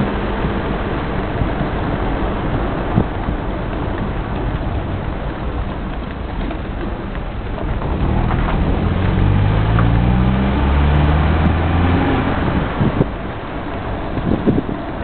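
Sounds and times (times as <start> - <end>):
car road noise: 0.0 - 15.0
low engine hum: 0.0 - 15.0.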